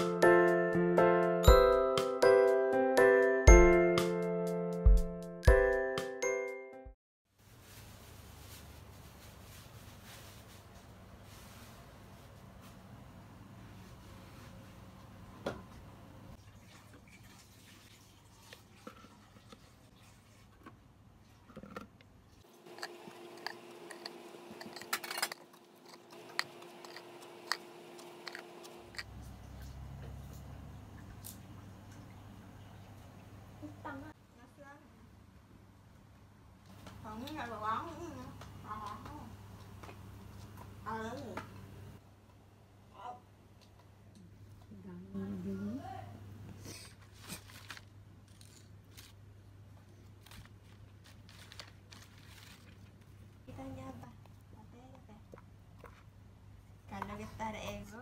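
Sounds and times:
rustling and scraping: 7.4 - 12.8, 46.7 - 49.2, 50.0 - 53.2
leaves rustling and clicking: 47.1 - 49.2, 50.1 - 53.2.

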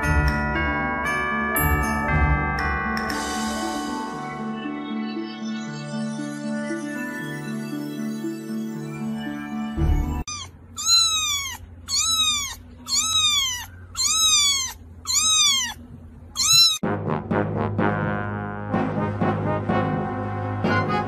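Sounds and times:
kitten meowing: 10.3 - 16.8.

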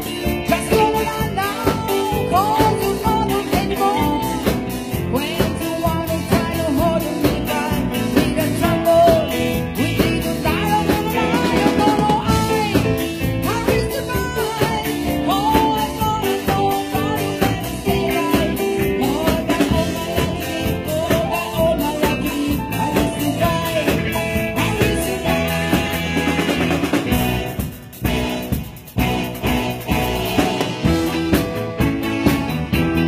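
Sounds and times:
drum kit: 0.0 - 33.0
electric bass guitar: 0.0 - 33.0
electronic keyboard: 0.0 - 33.0
woman singing: 0.4 - 26.7.

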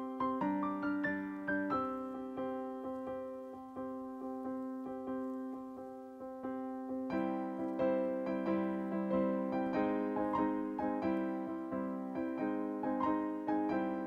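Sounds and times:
soft piano tune: 0.0 - 14.0.

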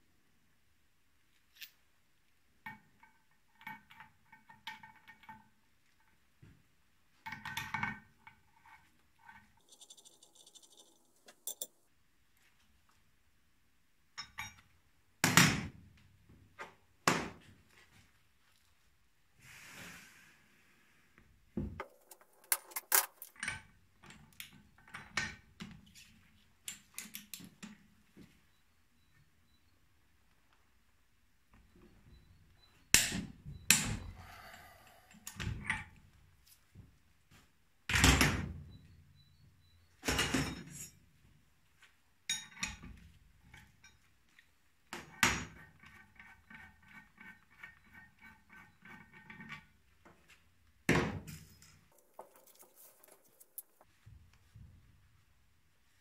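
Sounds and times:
metal tools clinking on workbench: 8.6 - 11.8, 21.8 - 23.7, 51.2 - 53.9.

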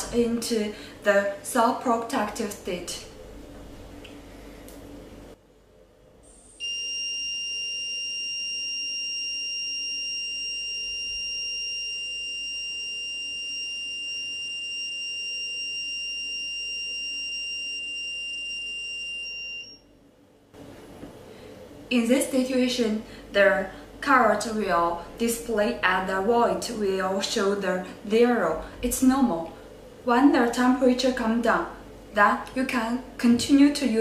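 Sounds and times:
high-pitched buzzer alarm tone: 6.5 - 19.9.

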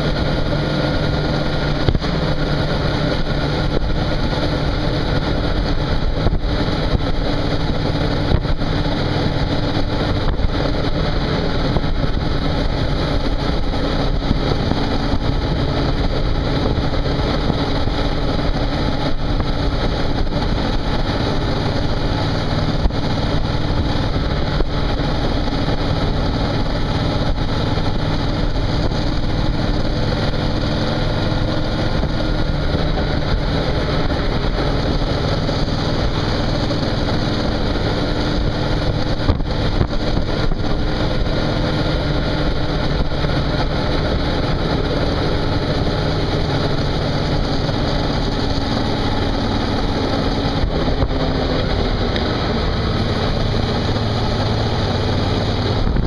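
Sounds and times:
motorcycle engine cruising: 0.0 - 56.0
rushing wind: 0.0 - 56.0.

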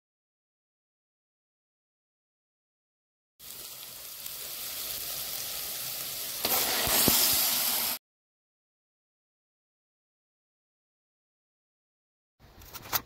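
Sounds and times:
sauce hitting hot pan: 3.4 - 8.0
vegetables sizzling in hot oil: 3.4 - 8.0.

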